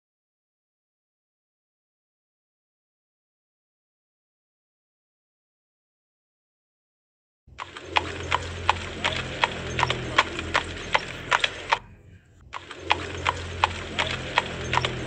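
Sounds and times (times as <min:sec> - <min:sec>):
low hum: 0:07.5 - 0:15.0.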